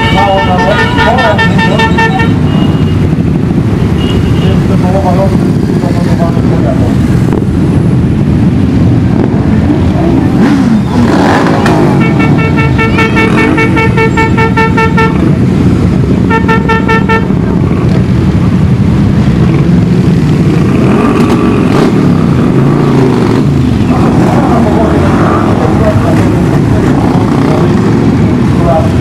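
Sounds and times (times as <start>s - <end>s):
horn short beeps: 0.0s - 3.1s, 3.9s - 4.7s, 11.6s - 15.3s
motorcycle engines revving: 0.0s - 29.0s.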